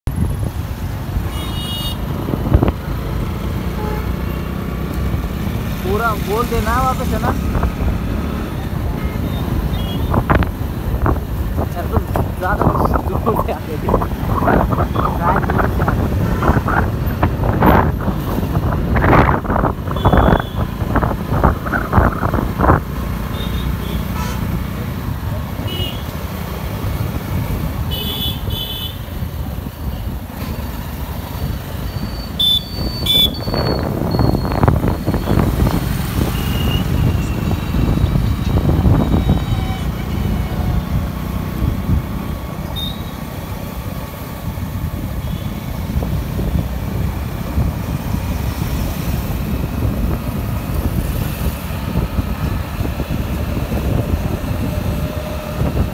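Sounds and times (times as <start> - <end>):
vehicle road and engine rumble: 0.0 - 55.9
wind buffeting microphone: 9.6 - 23.2, 32.8 - 42.6, 44.4 - 55.9.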